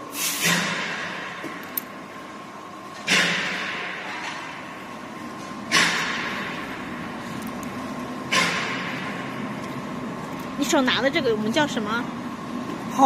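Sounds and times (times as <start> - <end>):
machine hissing air bursts: 0.0 - 1.5.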